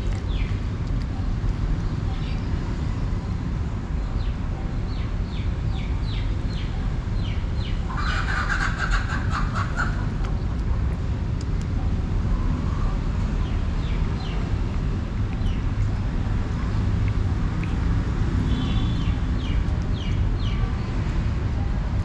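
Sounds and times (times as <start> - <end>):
low outdoor rumble: 0.0 - 22.0
rasping chattering bird call: 7.9 - 10.1.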